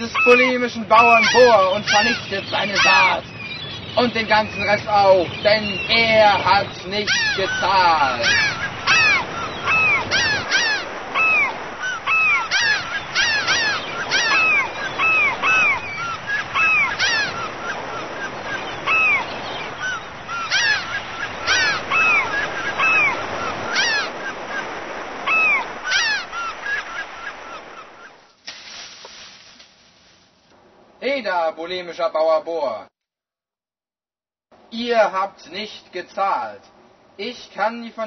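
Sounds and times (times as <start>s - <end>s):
gulls calling: 0.0s - 29.6s.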